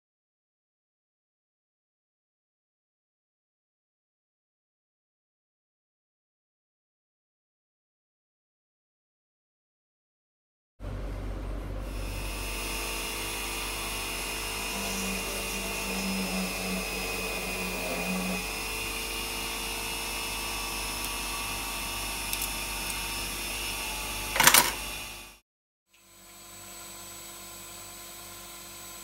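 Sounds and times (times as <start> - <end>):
drill press whining: 11.1 - 25.4.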